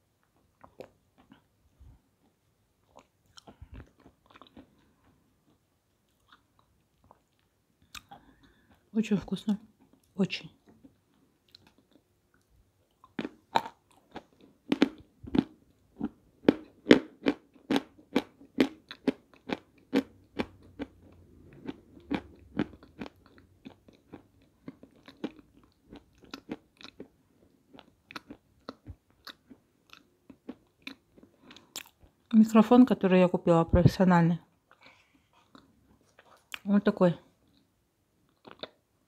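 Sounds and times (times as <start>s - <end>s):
crunchy chewing: 2.2s - 8.8s, 10.8s - 32.1s, 38.3s - 38.8s.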